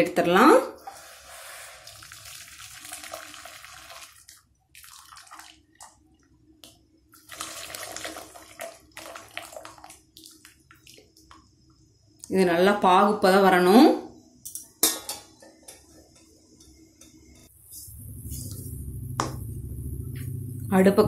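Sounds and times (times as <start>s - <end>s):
syrup pouring and splashing into wok: 0.9s - 5.7s, 7.2s - 11.0s.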